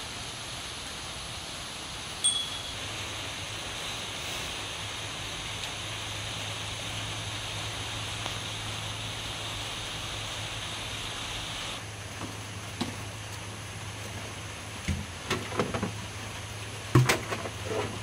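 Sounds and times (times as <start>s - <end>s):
steady rain falling: 0.0s - 18.0s
short high ding: 2.2s - 2.8s.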